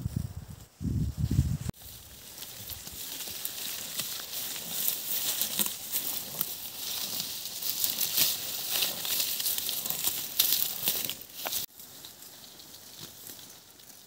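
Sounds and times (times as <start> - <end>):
dry vegetation rustling: 0.0 - 14.0.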